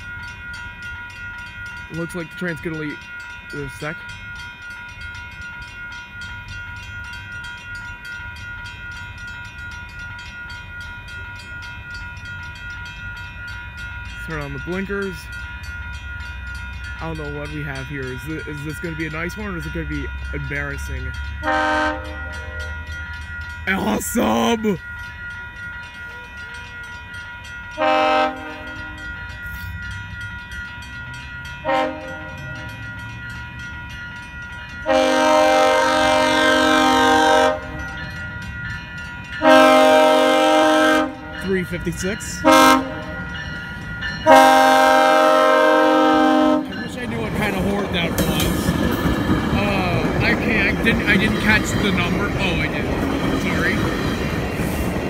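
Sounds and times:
level crossing bell ringing: 0.0 - 54.3
train air horn blasts: 21.4 - 22.7, 27.8 - 29.0, 31.6 - 32.4, 34.8 - 37.8, 39.4 - 41.3, 42.4 - 43.2, 44.2 - 46.8.

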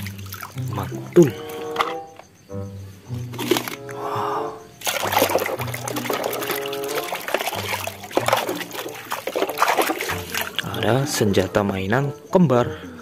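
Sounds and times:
water splashing in basin: 0.0 - 1.6, 3.3 - 3.8, 4.8 - 11.5
background music: 0.0 - 13.0.

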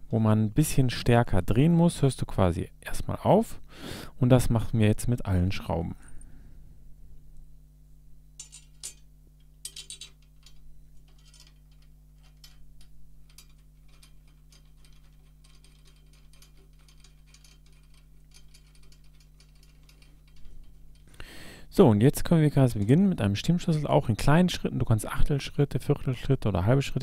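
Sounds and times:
small metallic clicks: 8.4 - 21.2.

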